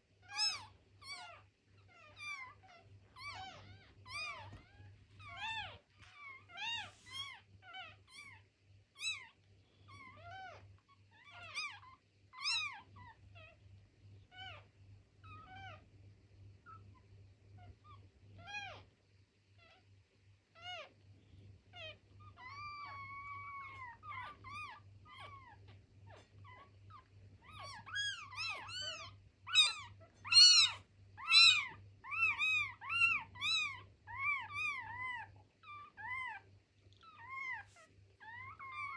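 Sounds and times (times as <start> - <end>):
faint low hum: 0.0 - 38.9
kittens mewing: 21.8 - 36.4.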